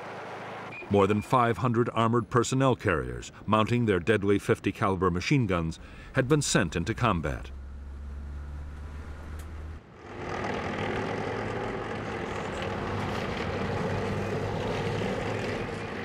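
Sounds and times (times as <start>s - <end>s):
armoured vehicle engines running: 5.5s - 16.0s.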